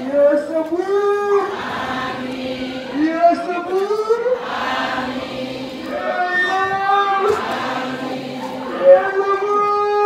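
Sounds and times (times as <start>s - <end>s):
voices chanting: 1.4s - 3.5s, 4.1s - 9.5s.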